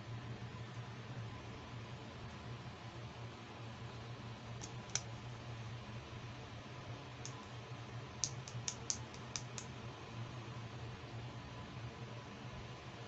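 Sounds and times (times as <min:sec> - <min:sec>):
plastic comb clicking: 0:08.2 - 0:09.7.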